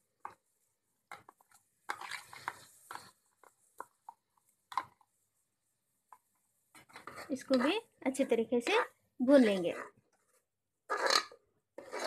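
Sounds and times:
spoon scraping plastic container: 1.1s - 5.1s, 6.7s - 12.0s.

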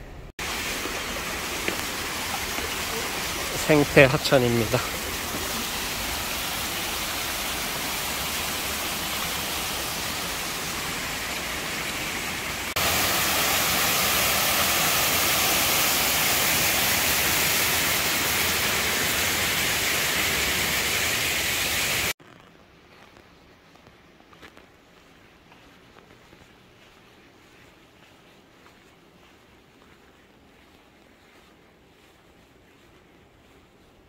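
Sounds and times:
water rushing along stream: 0.4s - 22.2s.

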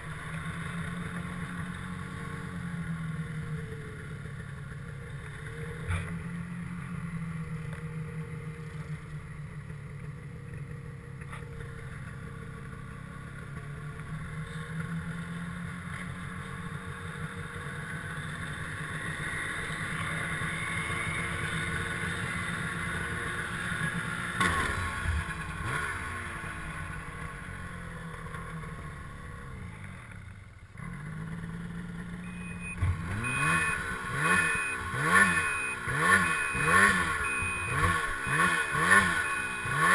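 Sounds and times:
snowmobile engine revving: 30.8s - 39.9s.

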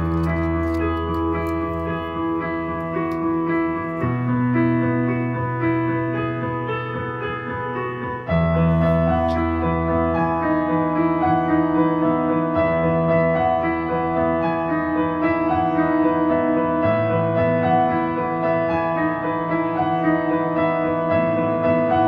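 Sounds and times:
piano playing held chords: 0.0s - 22.0s.

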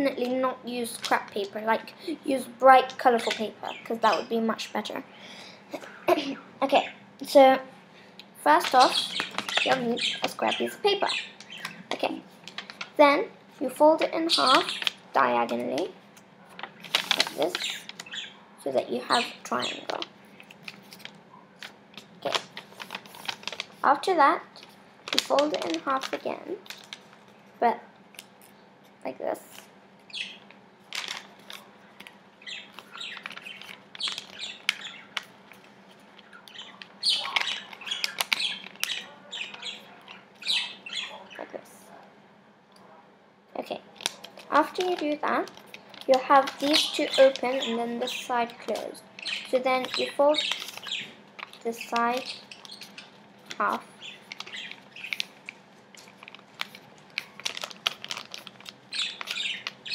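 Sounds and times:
paper rustling and crinkling: 11.4s - 13.0s, 16.5s - 18.2s, 19.7s - 23.9s, 24.5s - 27.4s, 30.9s - 39.8s, 44.0s - 59.9s.

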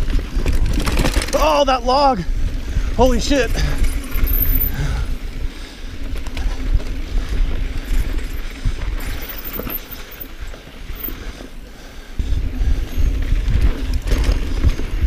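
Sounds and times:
tyres rolling over dirt and rocks: 0.0s - 2.2s
bike clicks and rattles: 0.0s - 15.0s
wind rumble on microphone: 0.0s - 15.0s.

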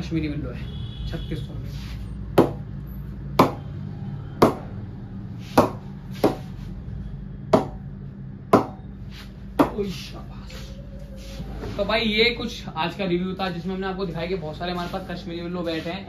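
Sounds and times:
cricket ball knocking on bat: 2.4s - 2.6s, 4.4s - 4.7s, 7.5s - 7.8s, 8.5s - 8.8s.

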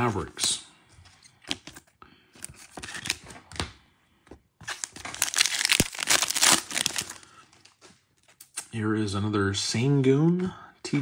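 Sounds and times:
plastic wrapper crinkling: 4.7s - 8.4s.

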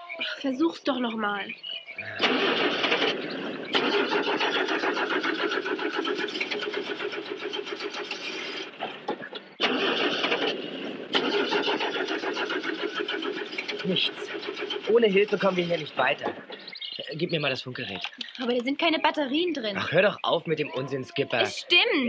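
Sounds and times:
engine starter cranking: 2.2s - 16.8s.

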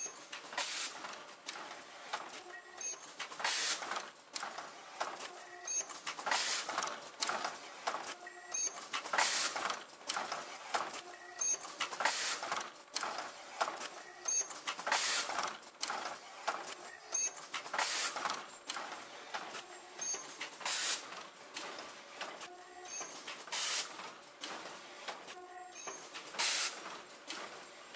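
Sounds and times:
high-pitched machine tone: 0.0s - 27.9s
machine mechanical clatter: 0.0s - 27.9s
air hissing: 23.5s - 24.0s, 26.3s - 26.9s.

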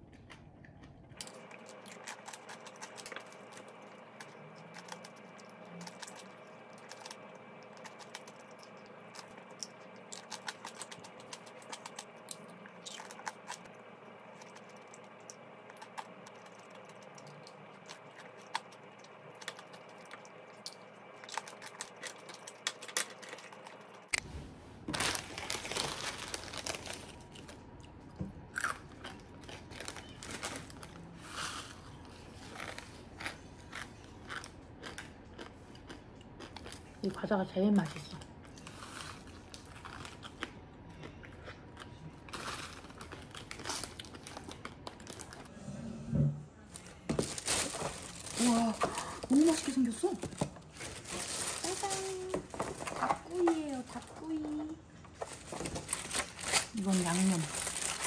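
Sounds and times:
crunching candied fruit: 0.0s - 24.2s, 24.9s - 45.5s, 46.8s - 54.5s, 55.1s - 58.0s
snack packet rustling: 1.2s - 24.1s, 24.9s - 27.6s, 28.6s - 31.8s, 42.3s - 45.5s, 46.8s - 58.0s.

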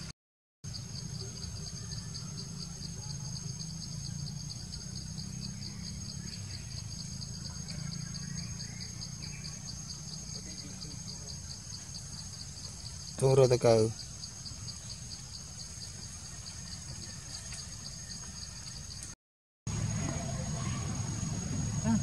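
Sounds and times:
insects chirping: 0.6s - 22.0s
high insect whine: 0.7s - 22.0s.

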